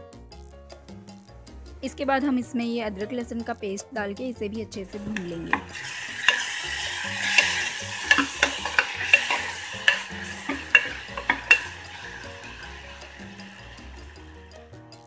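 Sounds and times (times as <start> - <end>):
metal spoon scraping and clinking pot: 5.0 - 14.5
vegetables sizzling in hot oil: 5.0 - 14.8.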